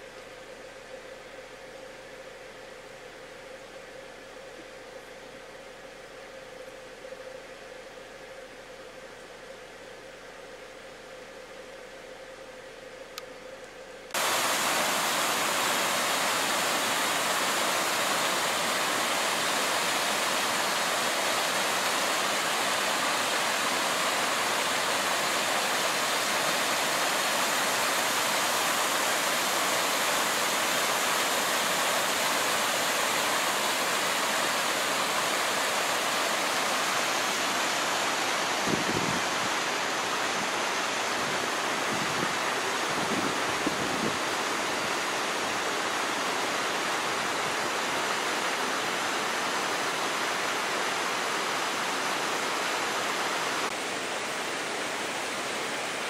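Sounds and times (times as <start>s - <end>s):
water rushing over rocks: 14.2s - 56.0s.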